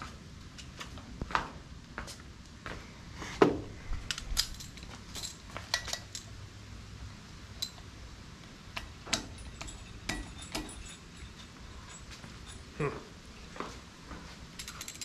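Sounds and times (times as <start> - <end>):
ratchet clicking on metal bolts: 8.8 - 12.6, 14.6 - 15.0.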